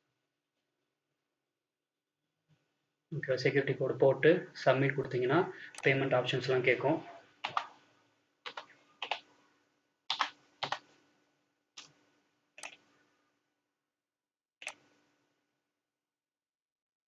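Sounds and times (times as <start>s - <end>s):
keyboard keystrokes: 7.4s - 7.7s.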